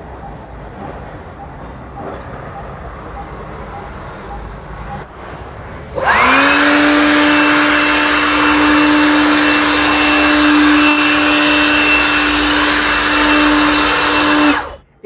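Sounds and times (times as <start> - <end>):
air blower motor whine: 6.0 - 14.8.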